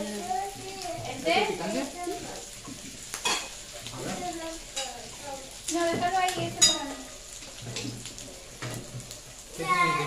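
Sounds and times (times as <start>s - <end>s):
meat sizzling on grill pan: 0.0s - 10.0s
cutlery clinking on plates: 3.1s - 4.9s, 5.9s - 6.9s, 7.6s - 9.0s.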